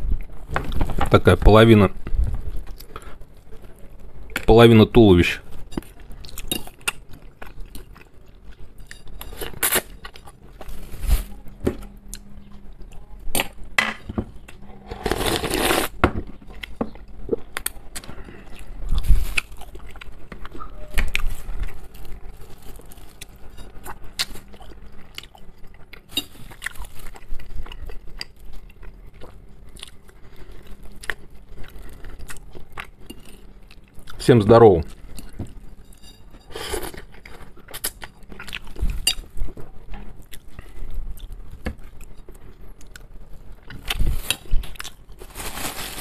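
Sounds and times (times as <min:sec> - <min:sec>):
chewing: 0:16.5 - 0:34.2, 0:36.8 - 0:39.3.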